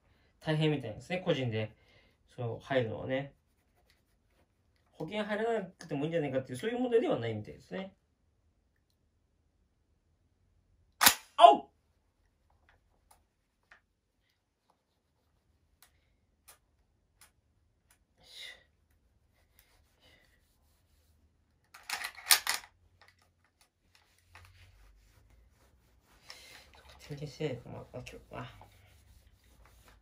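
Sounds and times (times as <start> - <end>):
cloth rubbing: 2.8 - 4.9, 12.8 - 15.8, 19.0 - 21.4, 23.9 - 30.0
shotgun mechanism clicks: 21.8 - 22.7.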